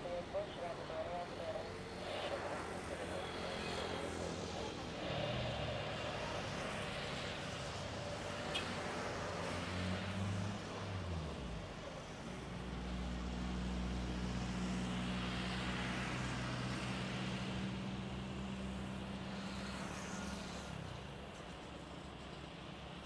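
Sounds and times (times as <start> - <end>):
jet engines droning: 0.0 - 8.2.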